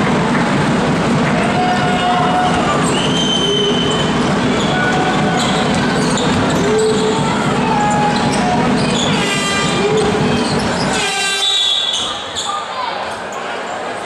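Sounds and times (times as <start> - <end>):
crowd shouting and chanting: 1.0 - 14.0
short whistles: 2.9 - 4.2
horn blast: 8.5 - 12.0.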